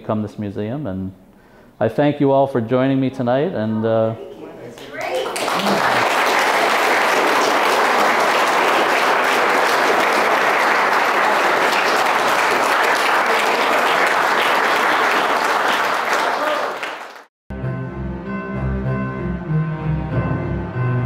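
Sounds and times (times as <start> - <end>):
people applauding: 4.8 - 17.3.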